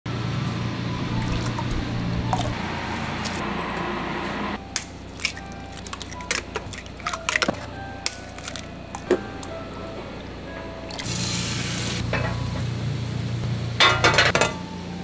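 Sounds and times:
eggshells cracking: 0:04.8 - 0:09.1.

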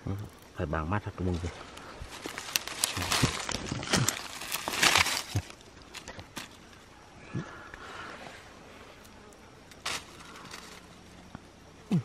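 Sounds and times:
rustling in dry leaves: 0:01.2 - 0:06.9, 0:08.0 - 0:11.3.

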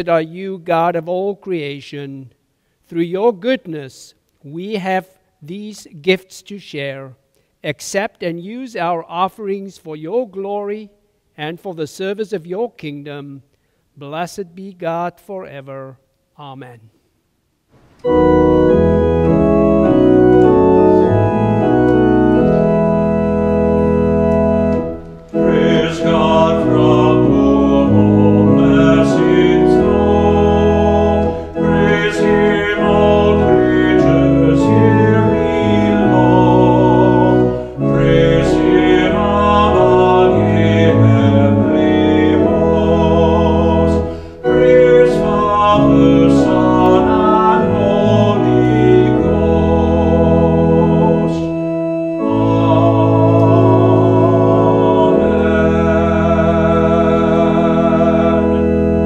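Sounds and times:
church organ playing chords: 0:18.0 - 0:59.0
man singing: 0:25.4 - 0:51.6, 0:52.2 - 0:58.7.

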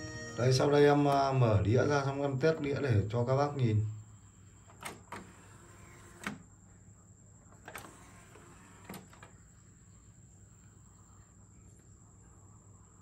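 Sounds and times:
faint motor whir: 0:02.5 - 0:06.6, 0:07.4 - 0:12.1
disc tray clicks and clunks: 0:04.6 - 0:06.4, 0:07.6 - 0:09.5.

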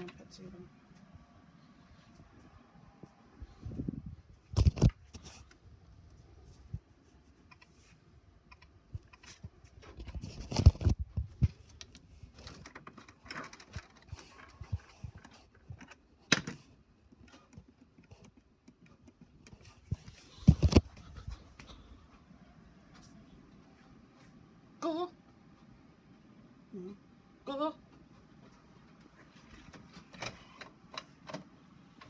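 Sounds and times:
handling clicks and rustling: 0:08.5 - 0:21.4.

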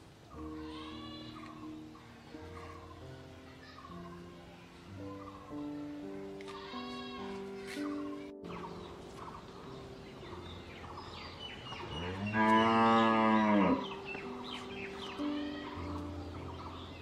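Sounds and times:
soft background music: 0:00.0 - 0:17.0
bird chirps: 0:07.6 - 0:17.0
cow mooing: 0:11.9 - 0:13.8.

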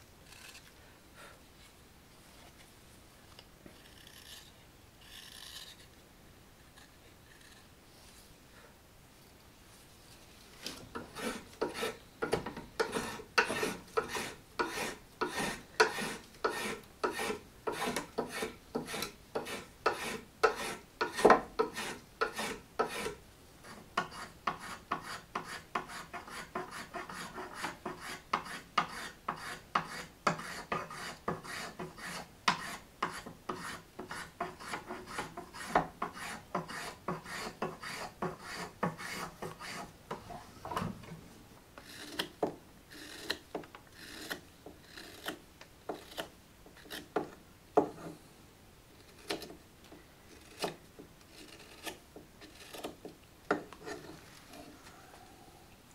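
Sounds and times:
knife scraping wood: 0:00.2 - 0:00.8, 0:03.7 - 0:06.0, 0:10.6 - 0:40.2, 0:41.8 - 0:48.2, 0:49.0 - 0:49.6, 0:50.3 - 0:54.8.

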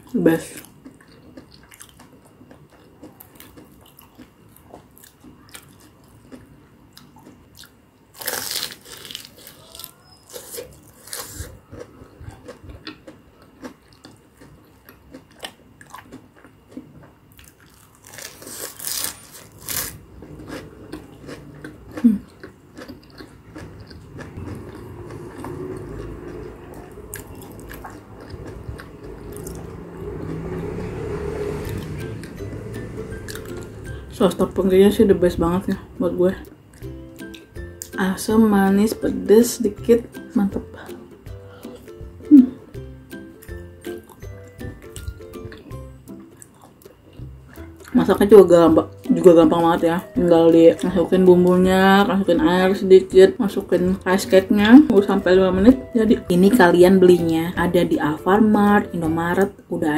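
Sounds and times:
wet chewing clicks: 0:00.6 - 0:07.8, 0:08.4 - 0:30.6, 0:43.3 - 0:48.1
crunchy bites: 0:07.2 - 0:25.6
low steady rumble: 0:19.6 - 0:46.1.

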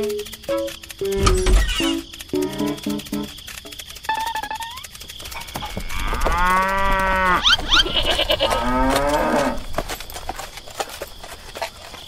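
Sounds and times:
high rising chirps: 0:00.0 - 0:05.1
cow mooing: 0:05.6 - 0:09.7.

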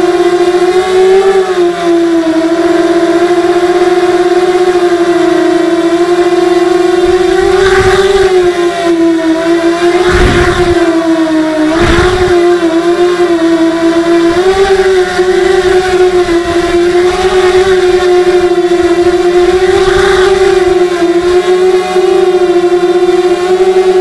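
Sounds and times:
drone motors whining: 0:00.0 - 0:24.0
low rumbles: 0:09.8 - 0:12.6.

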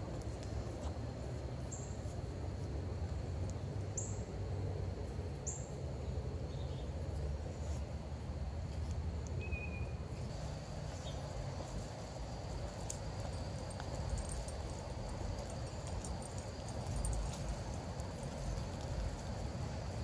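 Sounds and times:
steady low rumble: 0:10.1 - 0:20.0.

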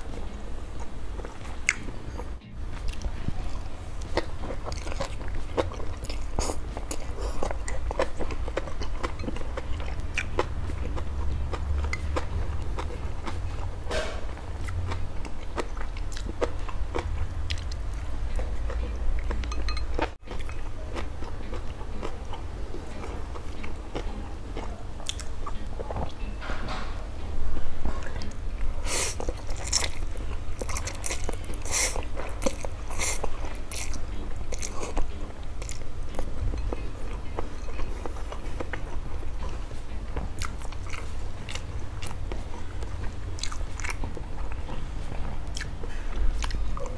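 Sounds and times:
person chewing noodles: 0:00.0 - 0:26.2, 0:27.8 - 0:46.9
steady low hum: 0:00.0 - 0:46.9.

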